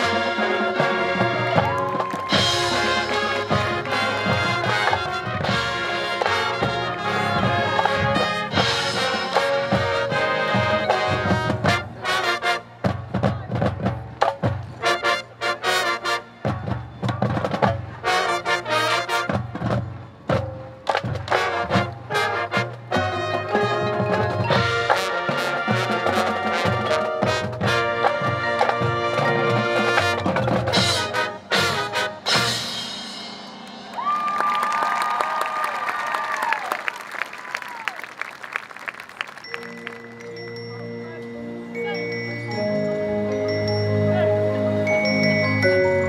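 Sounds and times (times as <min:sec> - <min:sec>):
marching band brass playing: 0:00.0 - 0:34.2.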